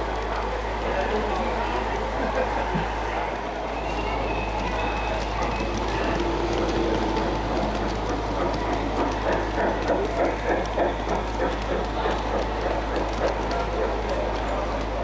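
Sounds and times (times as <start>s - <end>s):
model train wheels clattering: 4.4s - 15.0s.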